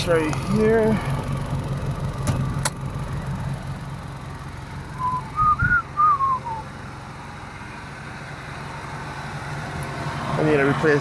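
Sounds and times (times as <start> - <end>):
car engine idling: 0.0 - 11.0
person whistling: 5.0 - 6.6.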